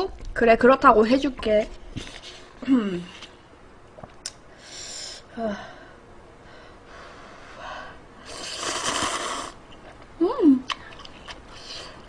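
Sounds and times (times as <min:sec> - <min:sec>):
noodles slurped: 0:08.2 - 0:09.6.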